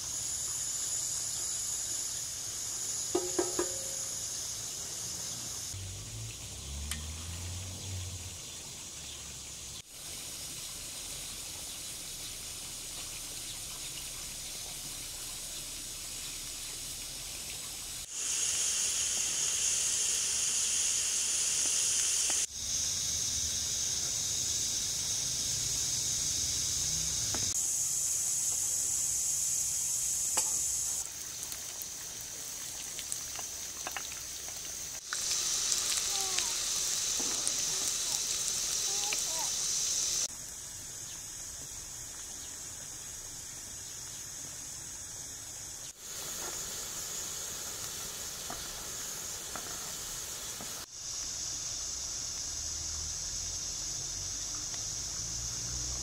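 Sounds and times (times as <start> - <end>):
onions sizzling in oil: 0.0 - 42.5, 44.2 - 56.0
wooden spatula taps and scrapes: 3.2 - 4.0.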